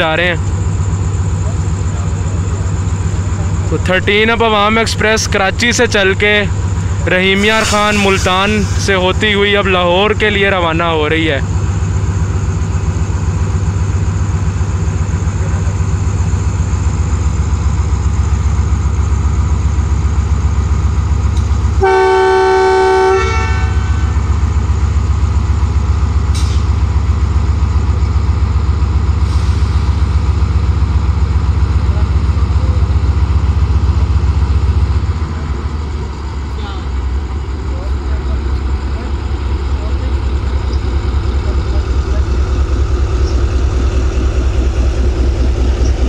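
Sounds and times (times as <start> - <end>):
locomotive idling: 0.0 - 46.0
locomotive horn blast: 7.3 - 9.0, 21.8 - 24.4.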